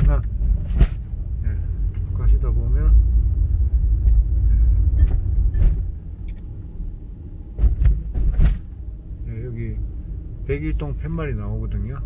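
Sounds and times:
car engine and tyre rumble: 0:00.0 - 0:12.0
sharp knocks and clicks: 0:07.6 - 0:08.8.

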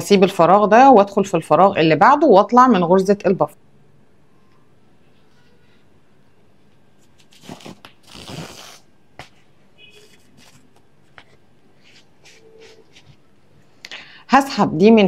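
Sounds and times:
cord rustling and scraping: 0:06.8 - 0:13.3.

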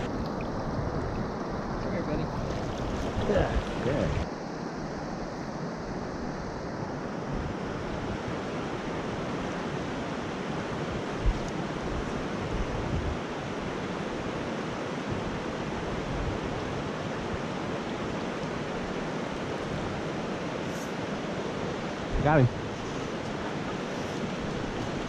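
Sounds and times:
stream flowing over rocks: 0:00.0 - 0:04.3, 0:13.2 - 0:25.0.

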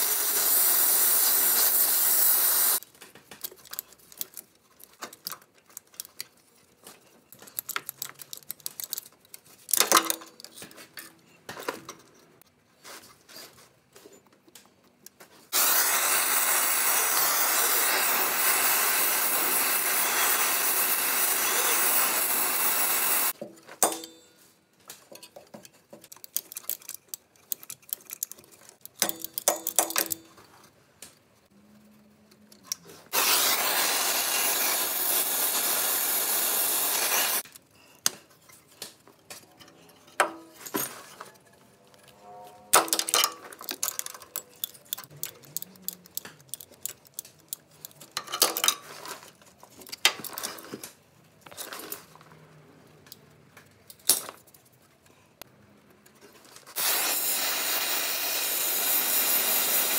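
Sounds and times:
cutting torch hissing: 0:00.0 - 0:02.8, 0:15.5 - 0:23.4, 0:33.1 - 0:37.4, 0:56.7 - 0:59.9
metal tools clinking: 0:37.8 - 0:50.7.

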